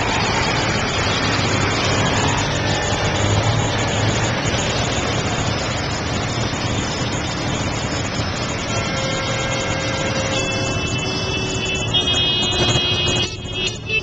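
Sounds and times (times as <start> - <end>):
vehicle engines idling and running: 0.0 - 14.0.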